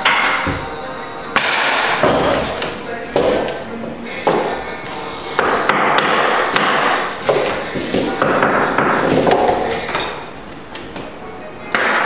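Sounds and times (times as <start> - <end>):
hammer knocking wooden flooring: 5.4 - 10.0.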